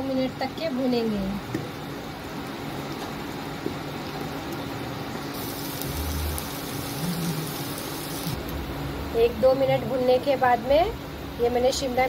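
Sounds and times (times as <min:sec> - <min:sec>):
steady low hum: 0:04.3 - 0:12.0
food sizzling in hot oil: 0:05.1 - 0:08.5.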